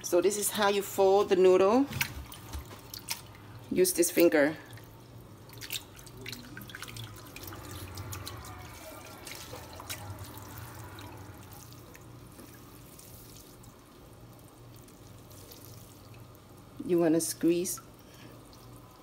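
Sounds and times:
low steady hum: 0.0 - 19.0
water dripping into a pot: 4.6 - 19.0.

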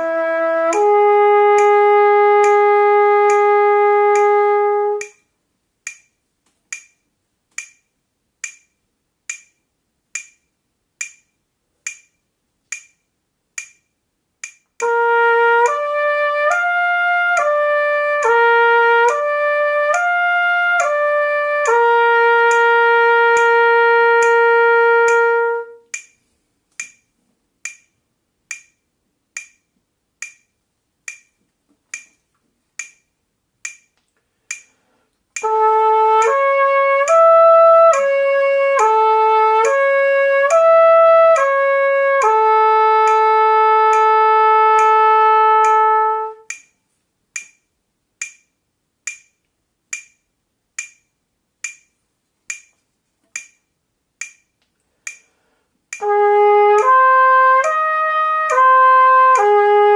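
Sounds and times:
trumpet playing slurred notes: 0.0 - 5.2, 14.8 - 25.9, 35.4 - 46.5, 56.0 - 59.9
metronome clicking: 0.0 - 59.9.

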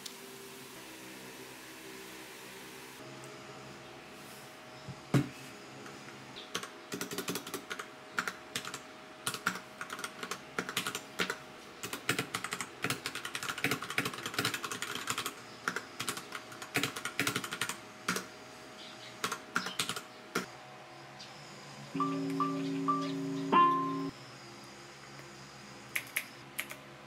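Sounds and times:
mechanical keyboard typing: 6.6 - 18.2.

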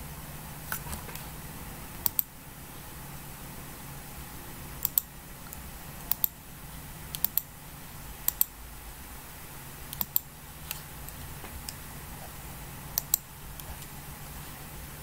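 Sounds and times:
low background hum: 0.0 - 15.0
computer mouse double-clicks: 2.0 - 2.3, 4.8 - 6.4, 7.1 - 7.5, 8.3 - 8.5, 9.9 - 10.8, 13.0 - 13.9.

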